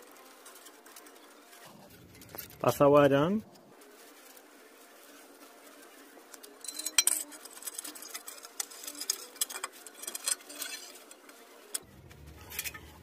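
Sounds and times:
wire scraping and clinking on brick: 0.0 - 2.8, 5.9 - 13.0.

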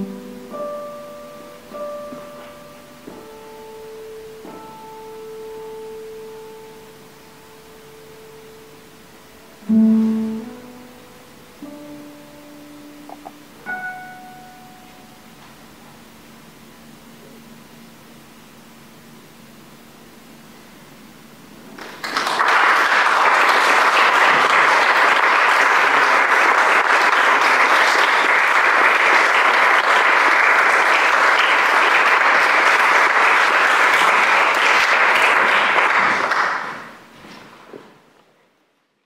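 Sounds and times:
audience applauding: 21.8 - 37.0.

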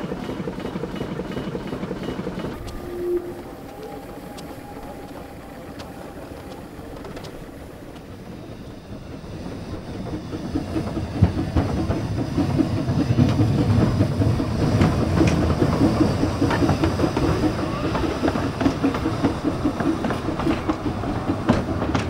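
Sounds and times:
steam locomotive chuffing: 0.0 - 22.0
train rumble: 0.0 - 22.0.

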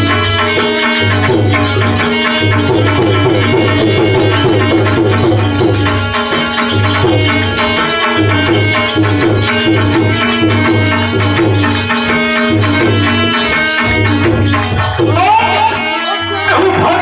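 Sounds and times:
drum beat: 0.0 - 17.0
rattling percussion: 0.0 - 17.0
sustained melody notes: 0.0 - 17.0
person singing: 15.0 - 17.0.

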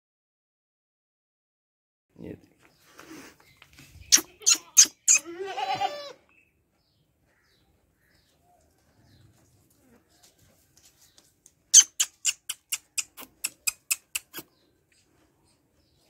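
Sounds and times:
goat bleating: 4.1 - 6.3.

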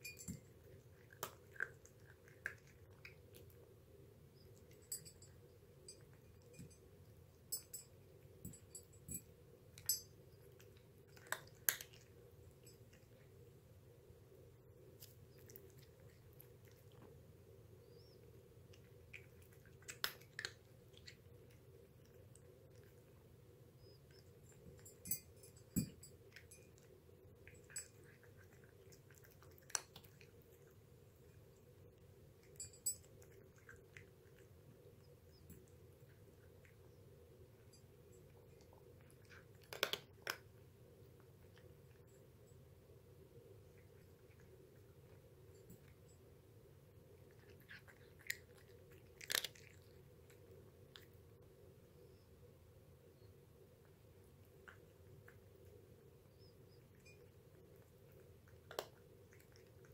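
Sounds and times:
cat eating from ceramic dish: 0.0 - 52.2, 53.0 - 59.9
low steady hum: 0.0 - 59.9
clinks against bowl: 7.5 - 10.2, 24.8 - 26.9
cat chewing clicks: 10.5 - 12.2, 18.8 - 23.0, 38.6 - 40.5.

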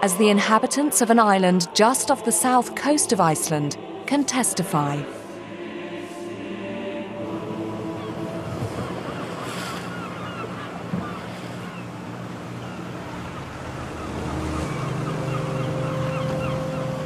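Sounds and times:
sea surf: 1.6 - 17.0
wind: 5.4 - 17.0
small motorboat engine running: 7.7 - 17.0.

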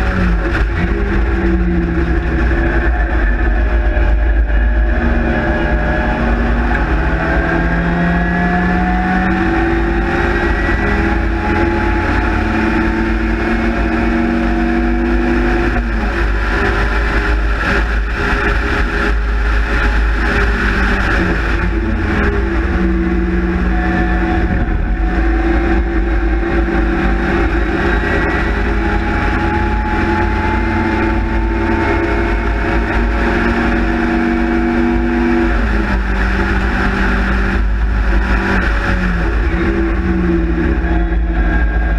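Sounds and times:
race car engine at high revs: 0.0 - 41.9
wind buffeting: 21.4 - 28.9.

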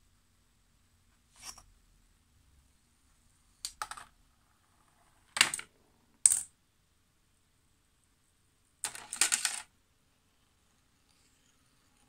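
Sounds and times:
small parts clicking and clattering: 8.8 - 9.7.

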